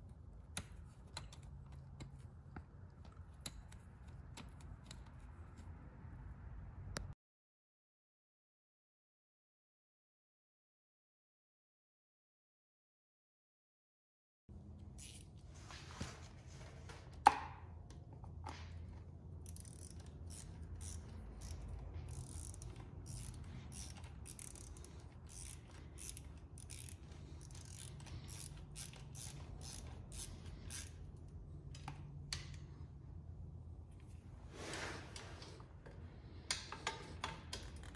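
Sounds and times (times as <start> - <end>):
ratchet wrench clicking: 15.0 - 15.2, 19.4 - 32.0.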